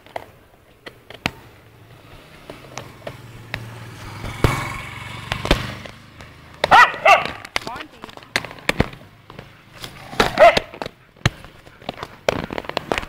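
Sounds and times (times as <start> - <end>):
rustling: 5.3 - 13.0.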